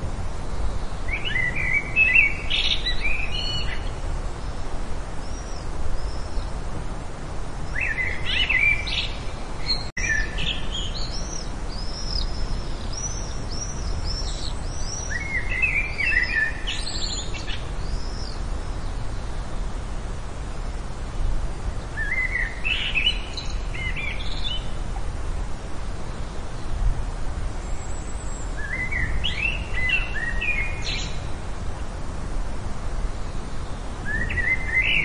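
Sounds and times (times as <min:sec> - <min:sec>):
outdoor background hiss: 0:00.0 - 0:35.0
songbird twittering: 0:00.5 - 0:04.5, 0:07.7 - 0:19.3, 0:21.9 - 0:24.8, 0:27.7 - 0:31.3, 0:34.0 - 0:35.0.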